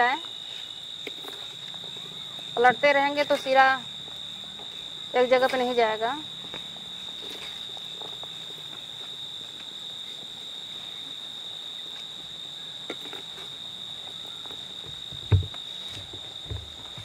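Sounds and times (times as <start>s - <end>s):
crickets chirring: 0.0s - 17.0s
short dull thump: 14.9s - 17.0s.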